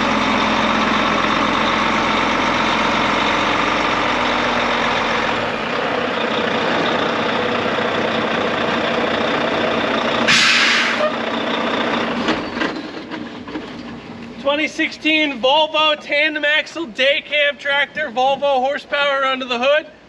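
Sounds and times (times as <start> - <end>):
diesel truck engine running: 0.0 - 18.4
air-brake hiss: 10.3 - 11.1.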